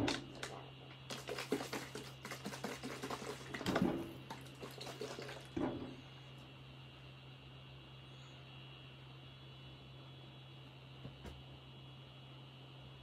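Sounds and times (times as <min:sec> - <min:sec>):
liquid sloshing in plastic bottles: 0:00.0 - 0:05.9.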